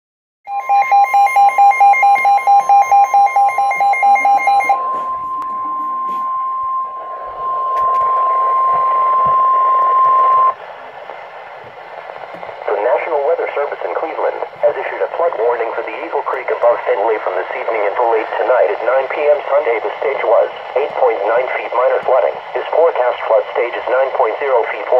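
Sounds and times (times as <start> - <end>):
rapid shrill alarm beeps: 0.5 - 10.5
steady alarm tone: 0.5 - 10.6
radio hiss: 4.4 - 24.9.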